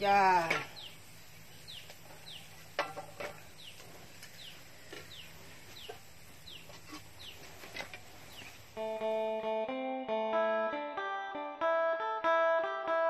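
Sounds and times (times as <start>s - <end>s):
chicks peeping: 1.6s - 2.6s, 3.6s - 7.5s.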